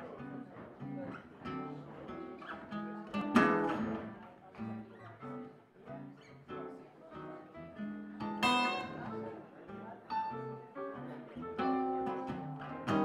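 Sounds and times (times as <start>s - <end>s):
acoustic guitar picking single notes: 0.0s - 5.4s, 6.3s - 9.3s, 10.1s - 13.0s
live blues band: 0.6s - 4.8s, 8.2s - 9.3s, 10.3s - 13.0s.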